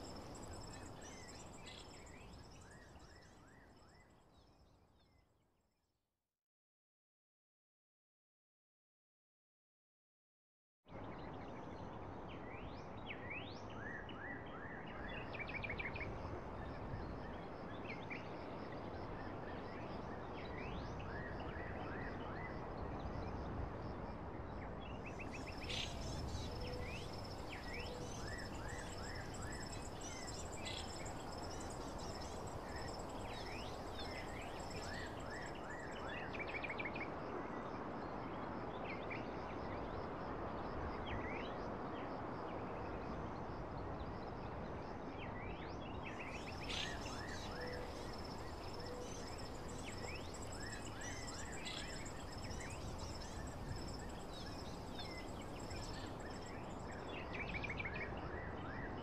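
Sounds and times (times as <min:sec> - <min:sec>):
noisy outdoor background: 0:00.0 - 0:05.8, 0:10.9 - 0:59.0.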